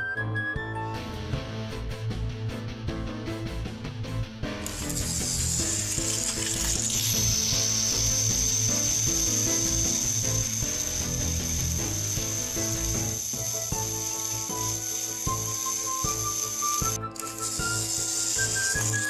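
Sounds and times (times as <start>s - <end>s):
toy train motor whining: 4.6s - 19.0s
plastic toy trains clattering: 4.7s - 7.2s.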